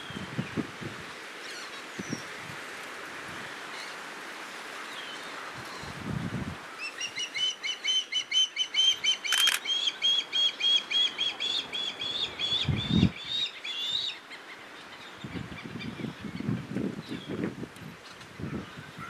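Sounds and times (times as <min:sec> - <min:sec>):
sharp click: 0:09.3 - 0:09.6.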